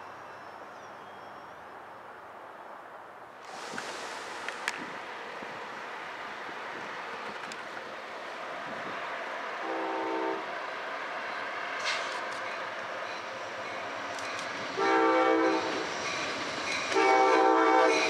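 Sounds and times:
steady outdoor hiss: 0.0s - 18.0s
train horn blast: 9.6s - 10.5s, 14.8s - 15.8s, 16.9s - 18.0s.

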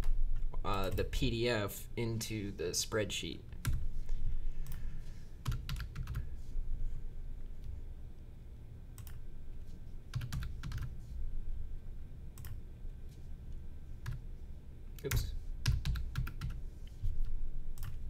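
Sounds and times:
low steady hum: 0.0s - 18.0s
typing on keyboard: 5.4s - 6.2s, 10.1s - 10.9s, 15.0s - 16.6s.

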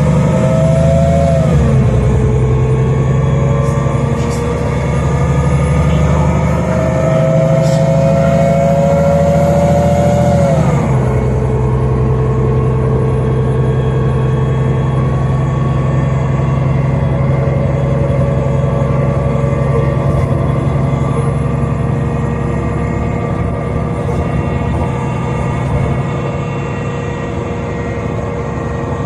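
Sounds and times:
bus engine whine: 0.0s - 29.0s.

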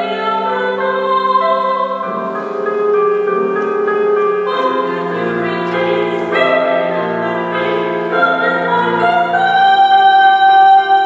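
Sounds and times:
piano accompaniment: 0.0s - 11.0s
mixed choir singing chords: 4.4s - 11.0s.

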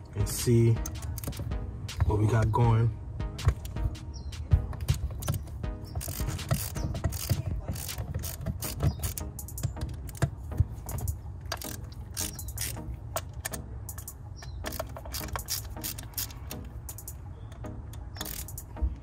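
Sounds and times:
socket ratchet clicking: 0.8s - 1.5s, 5.2s - 18.8s.

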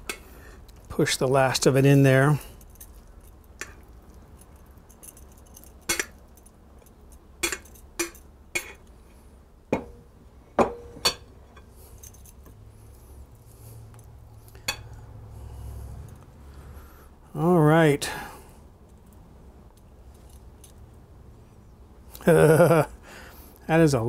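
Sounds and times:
glass bowl knocking on wood: 9.8s - 10.0s, 10.6s - 10.9s.

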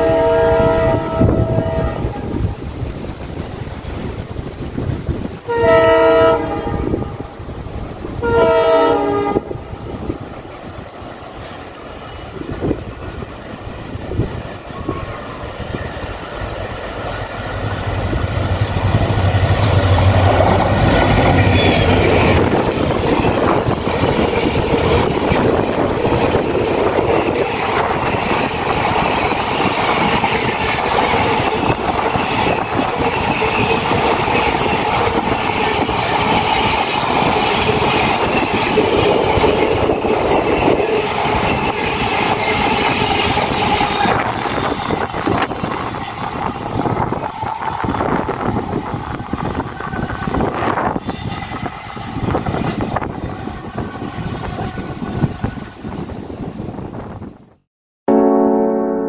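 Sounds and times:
diesel locomotive engine drone: 0.0s - 57.3s.

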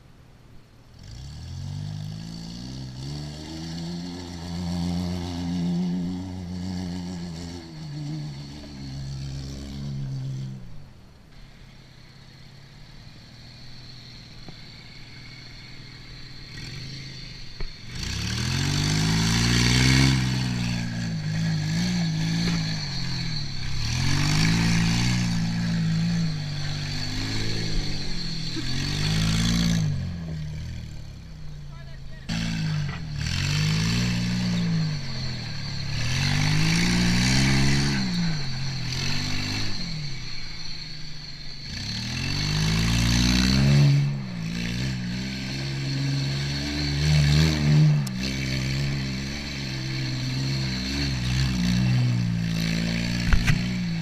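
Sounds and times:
car engine revving: 0.8s - 54.0s.

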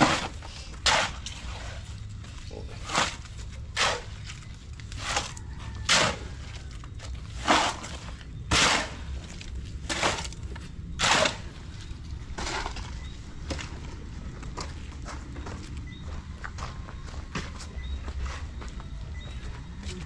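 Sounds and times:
hand tool scraping concrete mix: 0.0s - 13.7s.

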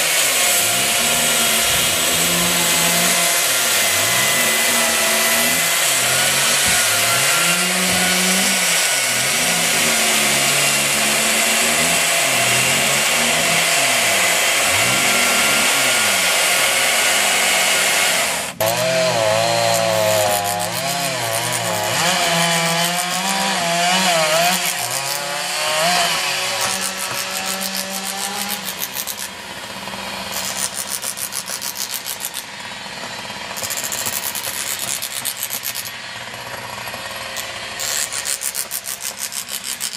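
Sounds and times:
chainsaws cutting wood: 0.0s - 39.9s
fast rhythmic rasp: 19.6s - 29.3s.

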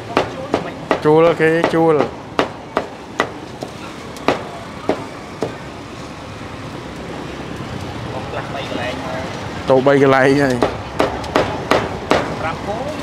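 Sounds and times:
street traffic noise: 0.0s - 13.0s
cleaver chopping on wooden block: 0.2s - 3.4s, 10.6s - 12.3s.

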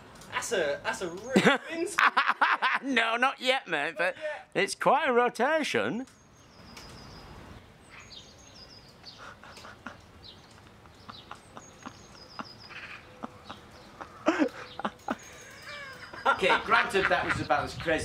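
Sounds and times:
light clicks and rattles: 8.8s - 11.5s, 14.4s - 16.4s
person chuckling: 9.2s - 17.4s.

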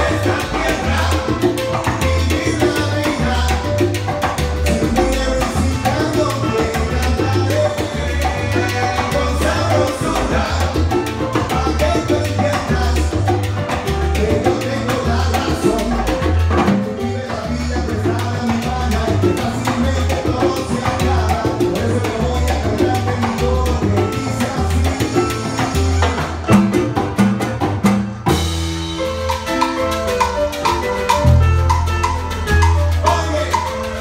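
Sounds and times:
live salsa band playing: 0.0s - 34.0s.

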